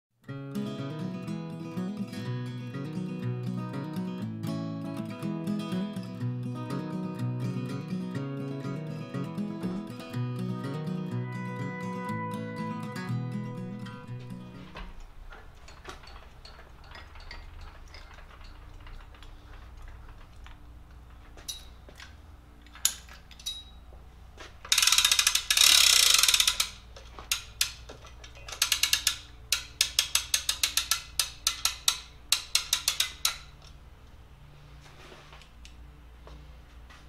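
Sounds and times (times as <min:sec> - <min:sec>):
low shop hum: 0:01.1 - 0:37.0
hand winch ratcheting: 0:14.7 - 0:20.6, 0:24.7 - 0:33.8.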